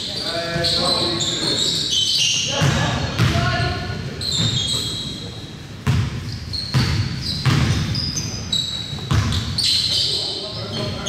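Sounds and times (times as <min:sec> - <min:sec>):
sneakers squeaking on court: 0:00.0 - 0:11.0
basketball bouncing on gym floor: 0:02.5 - 0:04.8, 0:05.8 - 0:09.6.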